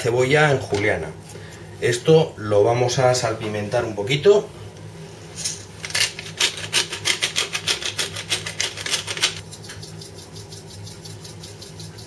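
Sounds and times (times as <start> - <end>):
pepper mill grinding: 5.8 - 12.0.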